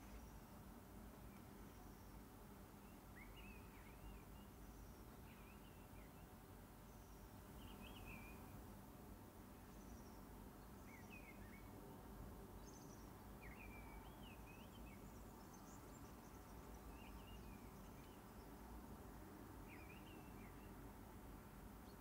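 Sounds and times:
distant birdsong chirps: 12.5 - 18.8, 19.6 - 20.9.

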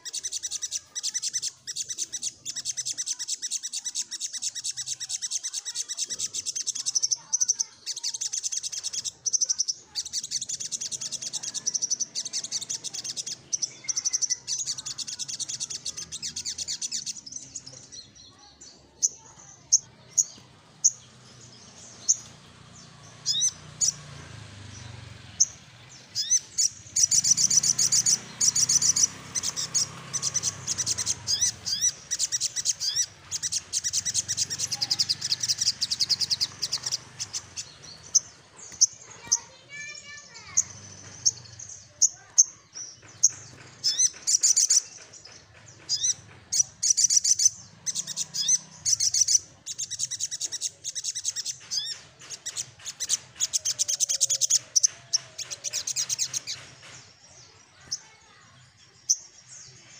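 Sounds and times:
bird chirps: 0.0 - 59.9
bird rattling trills: 25.3 - 57.0.

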